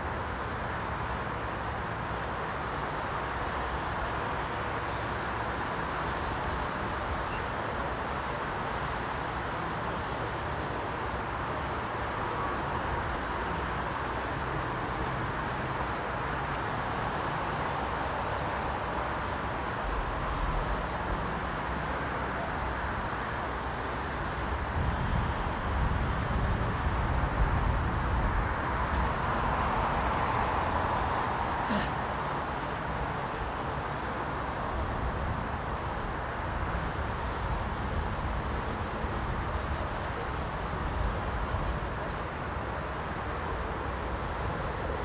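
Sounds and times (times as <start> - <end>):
city street noise: 0.0 - 45.0.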